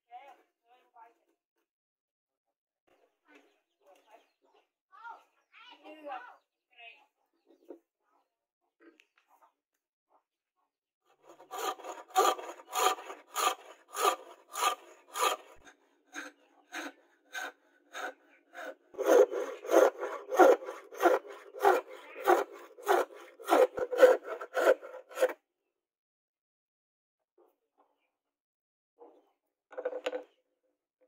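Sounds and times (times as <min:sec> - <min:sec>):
hand saw cutting wood: 0:11.1 - 0:25.4.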